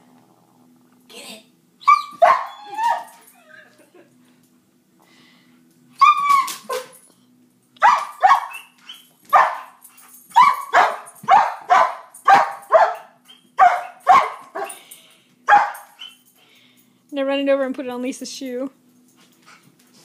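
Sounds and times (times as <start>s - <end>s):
dog barking: 1.9s - 2.6s, 7.8s - 8.7s, 9.3s - 9.8s, 10.4s - 14.8s, 15.5s - 16.0s.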